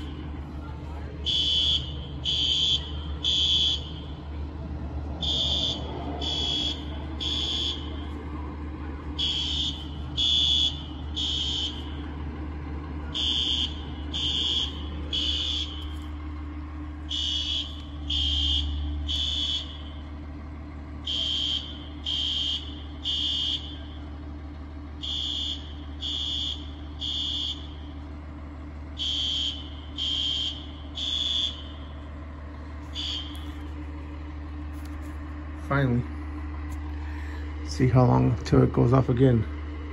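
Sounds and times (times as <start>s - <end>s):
steady low hum: 0.0s - 39.9s
fire alarm beeping: 1.2s - 4.1s, 5.2s - 8.1s, 9.2s - 12.0s, 13.1s - 16.0s, 17.1s - 20.0s, 21.0s - 23.9s, 25.0s - 27.8s, 29.0s - 31.8s, 33.0s - 33.6s.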